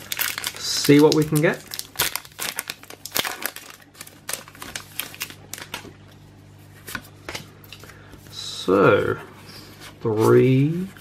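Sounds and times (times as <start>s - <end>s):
foil wrapper crinkling and tearing: 0.0s - 6.0s.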